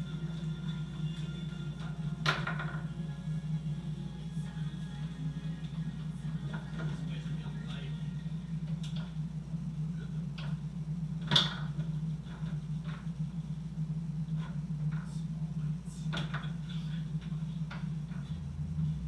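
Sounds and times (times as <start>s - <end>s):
steady low hum: 0.0s - 19.0s
foosball clacks and knocks: 2.3s - 2.9s.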